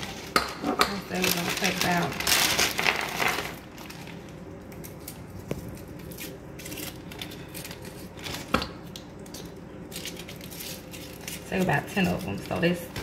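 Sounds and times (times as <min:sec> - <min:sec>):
foil-wrapped candies rattling: 0:00.9 - 0:08.5, 0:09.9 - 0:13.0.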